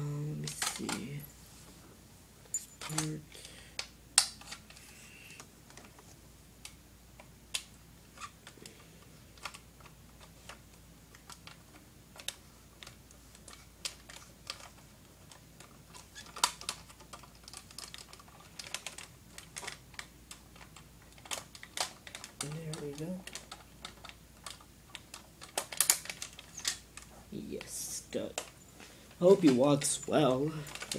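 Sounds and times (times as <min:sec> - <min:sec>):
plastic toy parts clicking: 0:00.4 - 0:01.1, 0:12.2 - 0:27.1.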